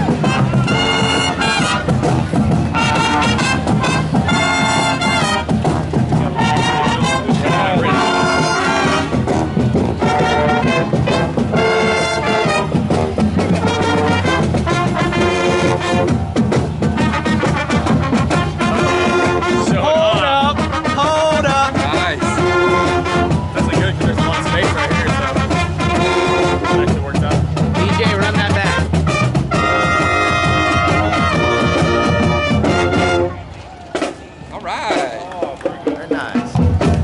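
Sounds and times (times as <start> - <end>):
brass music: 0.0 - 34.2.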